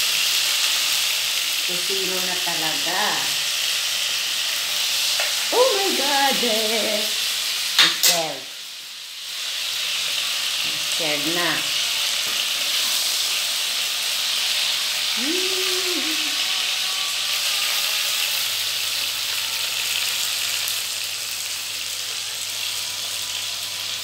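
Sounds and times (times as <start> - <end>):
knife turning sausages in pan: 0.0 - 8.5, 9.2 - 15.1
sausages sizzling in oil: 0.0 - 24.0.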